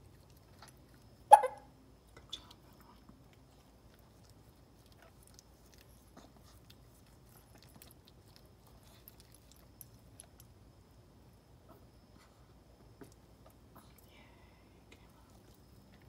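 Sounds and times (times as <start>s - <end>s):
dog licking puppy: 2.4s - 10.5s.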